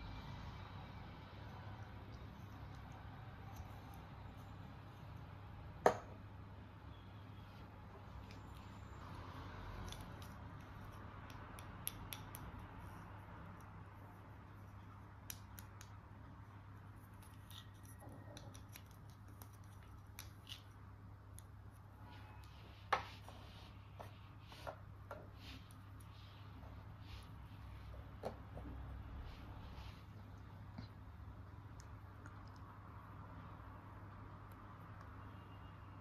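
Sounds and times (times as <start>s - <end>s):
low steady hum: 0.0s - 36.0s
scissors snipping: 9.8s - 13.8s
small sharp clicks and taps: 9.8s - 13.9s, 15.1s - 16.2s.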